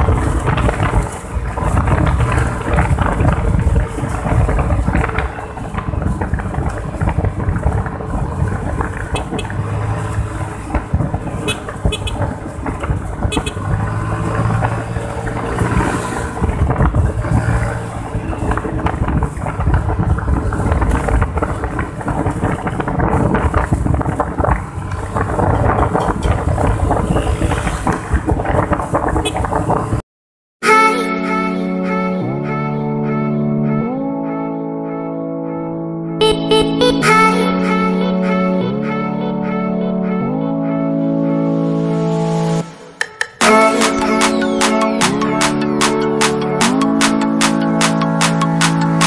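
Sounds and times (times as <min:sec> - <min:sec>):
scooter engine running: 0:00.0 - 0:28.1
wind rush: 0:00.0 - 0:30.0
road noise: 0:00.0 - 0:49.0.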